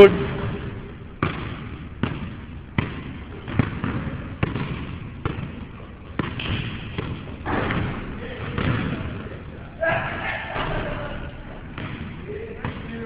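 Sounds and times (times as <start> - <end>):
basketball bouncing on hard court: 1.2 - 9.0, 11.7 - 13.0.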